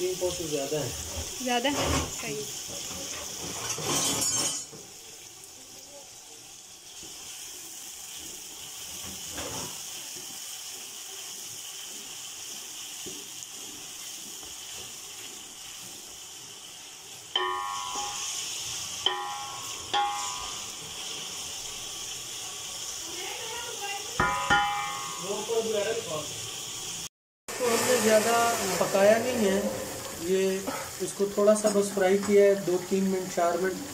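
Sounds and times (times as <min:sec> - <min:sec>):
onions sizzling in a pot: 0:00.0 - 0:33.9
wooden spoon knocking a pot: 0:24.2 - 0:25.2.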